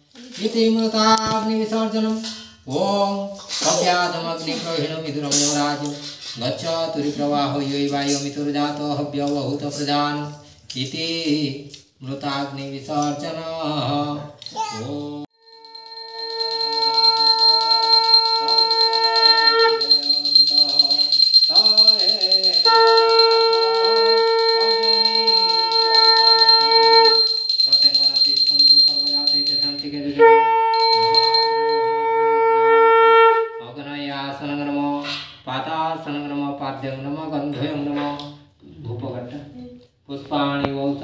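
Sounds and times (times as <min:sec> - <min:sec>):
conch shell blown: 0:15.4 - 0:27.5, 0:29.9 - 0:33.6
hand bell ringing: 0:15.4 - 0:32.0.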